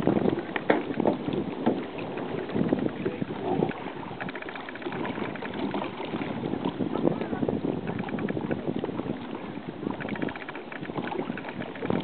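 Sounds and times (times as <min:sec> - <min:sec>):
choppy water lapping: 0:00.0 - 0:12.0
wind buffeting microphone: 0:00.0 - 0:12.0
rapid faint ticking: 0:04.1 - 0:05.8, 0:09.9 - 0:12.0.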